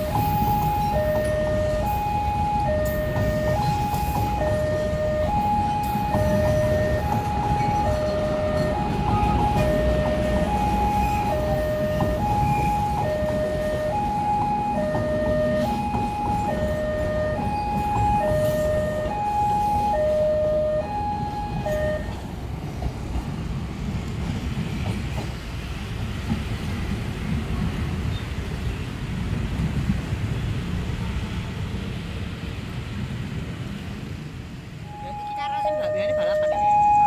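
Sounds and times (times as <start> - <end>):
two-tone electronic warning alarm: 0.0 - 22.2, 34.8 - 37.0
train rumbling along track: 0.0 - 37.0.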